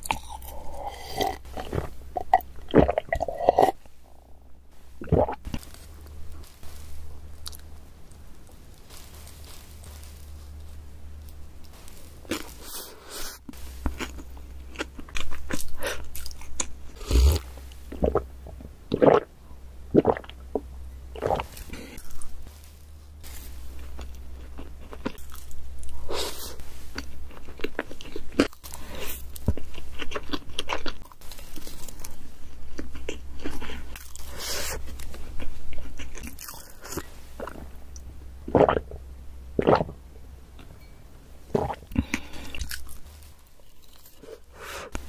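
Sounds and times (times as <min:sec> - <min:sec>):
spoon bites and crunching: 0:00.0 - 0:03.8, 0:11.7 - 0:17.4, 0:23.8 - 0:32.2, 0:41.7 - 0:45.0
steady low hum: 0:00.0 - 0:45.0
wet chewing: 0:41.5 - 0:45.0.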